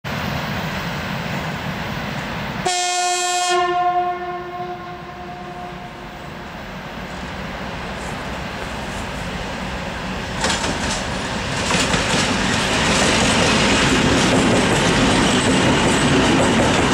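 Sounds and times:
locomotive horn blast: 0:02.6 - 0:06.6.

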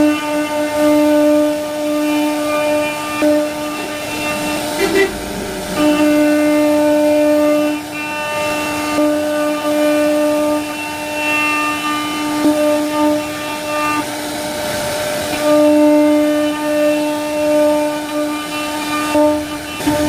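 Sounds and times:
router spindle whining: 0:01.4 - 0:08.9.

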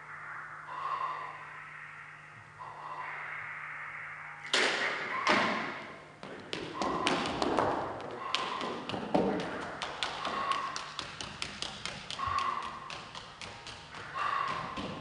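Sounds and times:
footsteps on wooden stage: 0:06.2 - 0:15.0.

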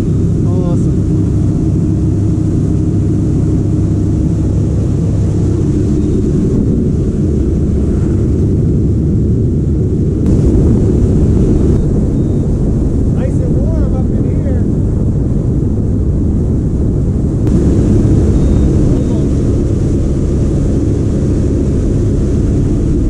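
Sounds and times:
boat engine rumbling: 0:00.0 - 0:23.0
water noise: 0:00.0 - 0:23.0
wind: 0:00.0 - 0:23.0.

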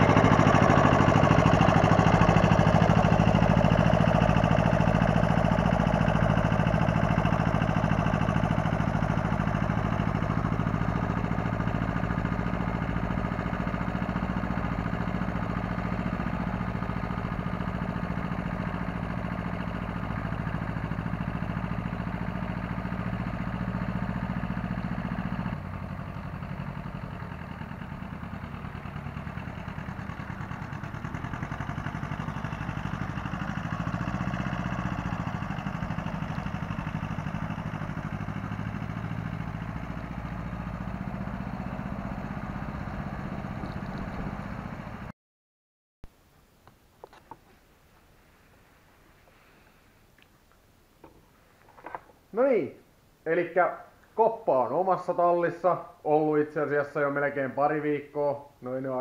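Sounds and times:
tractor engine running: 0:00.0 - 0:45.1.

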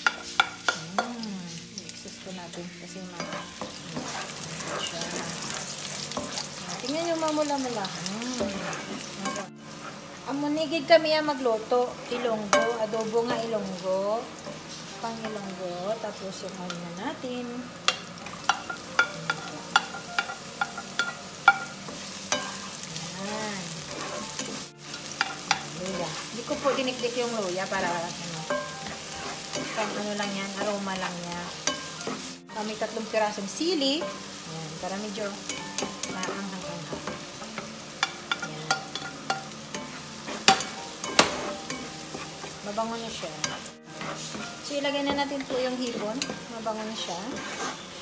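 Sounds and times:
onion sizzling in oil: 0:00.0 - 0:48.0
spatula tapping: 0:03.2 - 0:09.5, 0:12.1 - 0:13.5, 0:17.8 - 0:22.7, 0:23.8 - 0:32.3, 0:34.9 - 0:47.8.

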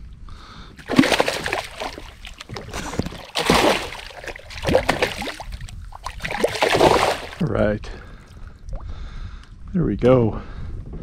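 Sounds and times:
fish thrashing in water: 0:00.8 - 0:07.4.

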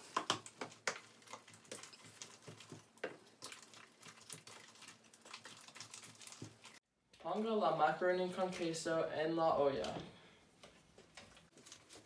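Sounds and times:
wet squish of thick mixture: 0:00.0 - 0:07.4.

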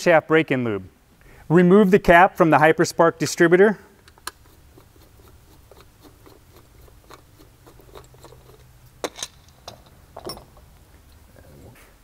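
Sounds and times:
screwdriver clicking and scraping: 0:04.0 - 0:09.6.

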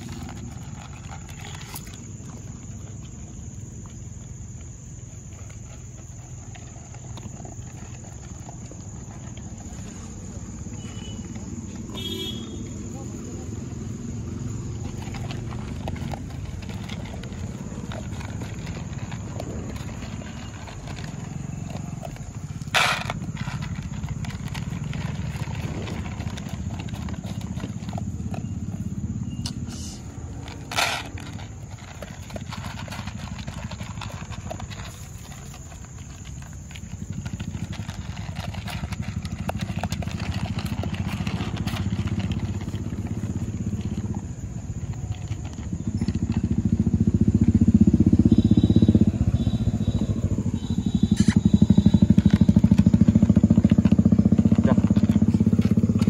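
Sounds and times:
dogs crunching dry kibble: 0:00.0 - 0:56.0.

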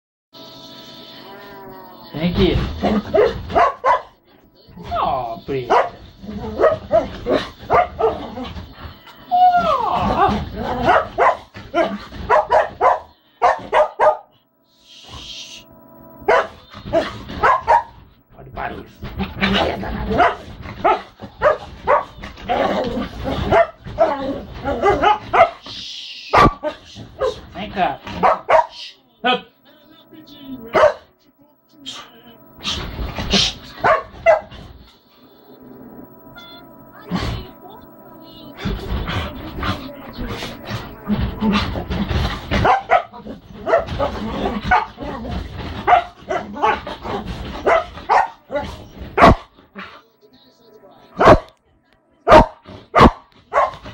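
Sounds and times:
dog barking: 0:03.1 - 0:04.2, 0:05.5 - 0:08.4, 0:10.2 - 0:14.4, 0:16.3 - 0:18.0, 0:20.1 - 0:22.2, 0:23.3 - 0:25.7, 0:26.3 - 0:27.5, 0:28.1 - 0:28.8, 0:30.7 - 0:31.1, 0:33.4 - 0:34.6, 0:42.5 - 0:45.0, 0:45.7 - 0:49.6, 0:51.2 - 0:51.6, 0:52.3 - 0:53.9.

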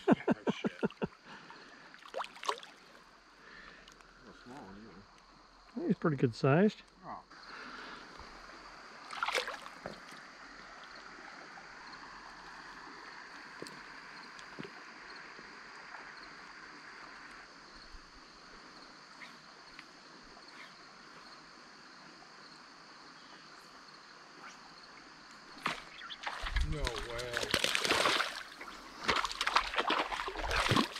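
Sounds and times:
creek water flowing: 0:00.0 - 0:06.6, 0:07.3 - 0:22.4, 0:23.4 - 0:30.9
water splashing by hand: 0:01.9 - 0:03.0, 0:09.0 - 0:10.2, 0:25.6 - 0:30.9.

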